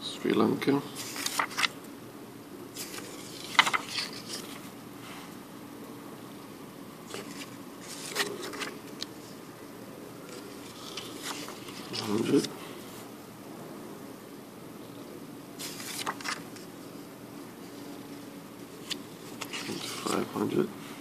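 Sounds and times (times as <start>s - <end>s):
faint steady hum: 0.0s - 21.0s
banknotes rustling and crinkling: 1.0s - 1.8s, 2.8s - 4.7s, 7.1s - 9.4s, 10.3s - 12.8s, 15.6s - 16.7s, 17.7s - 20.6s.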